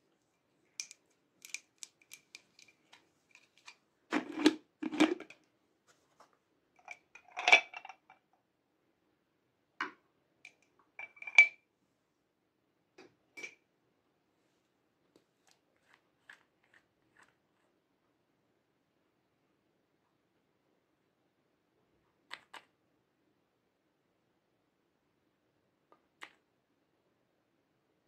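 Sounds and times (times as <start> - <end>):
glass bottles clicking and tapping: 6.8 - 8.1, 11.0 - 11.6.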